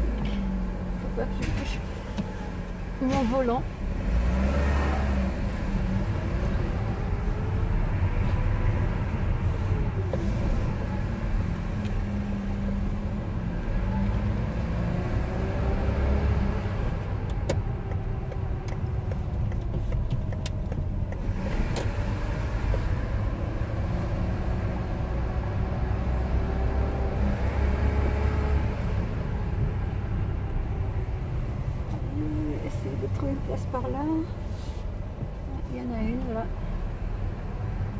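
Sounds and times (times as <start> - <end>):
car engine and road rumble: 0.0 - 37.9.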